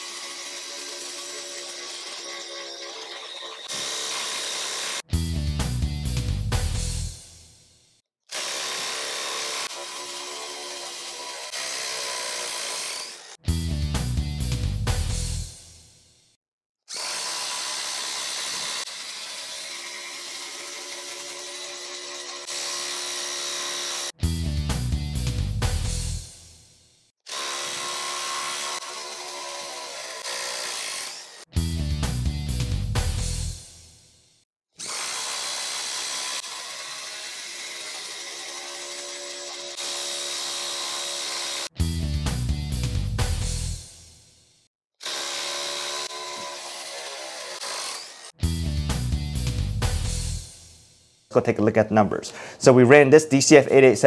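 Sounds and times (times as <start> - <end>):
impact driver high buzz: 0.0 - 5.1, 8.3 - 13.4, 16.9 - 24.2, 27.3 - 31.5
impact driver hammering: 18.0 - 24.0.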